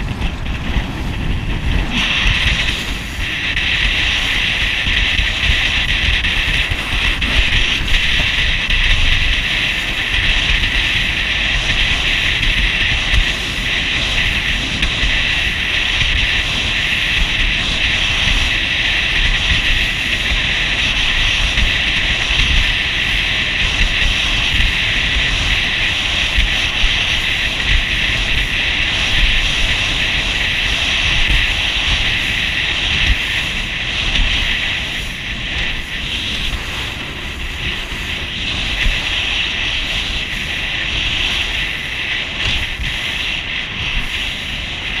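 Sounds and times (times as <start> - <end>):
motorboat engine drone: 0.0 - 45.0
rushing water and spray: 0.0 - 45.0
wind buffeting microphone: 0.0 - 45.0.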